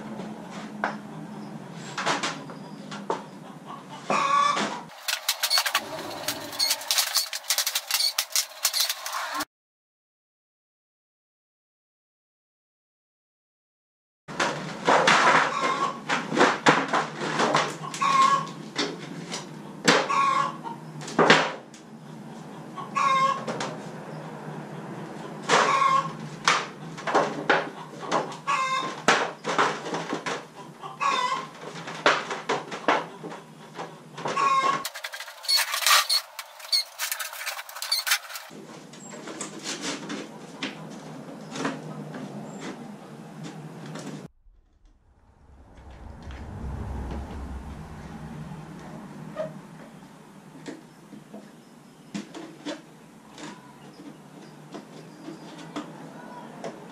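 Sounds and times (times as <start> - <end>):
chickens clucking: 1.0 - 9.4, 17.5 - 18.6, 22.3 - 23.8, 25.0 - 26.3, 27.2 - 29.6, 30.3 - 31.8, 32.8 - 38.5.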